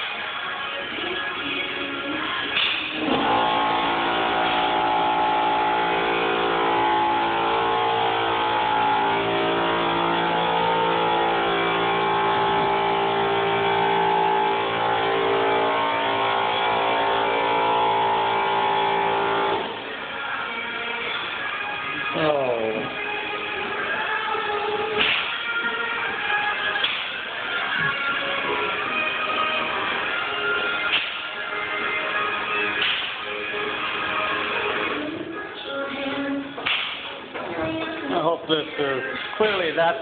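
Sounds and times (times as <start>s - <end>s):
air compressor motor humming: 2.5s - 20.4s.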